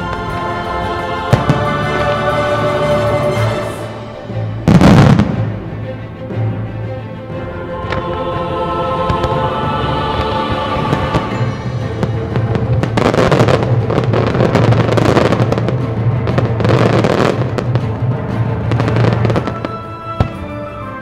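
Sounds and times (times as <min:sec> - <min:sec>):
music: 0:00.0 - 0:21.0
fireworks bursting and crackling: 0:04.7 - 0:05.5, 0:10.1 - 0:20.5.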